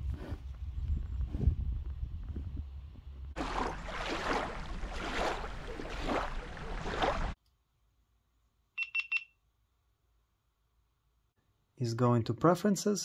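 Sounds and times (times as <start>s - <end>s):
small waves lapping at shore: 3.4s - 7.4s
camera beeps: 8.8s - 9.4s.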